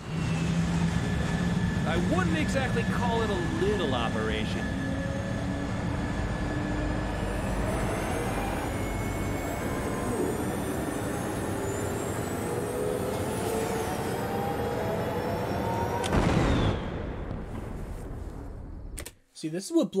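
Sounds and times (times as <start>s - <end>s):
airship engines rumbling: 0.0s - 15.7s.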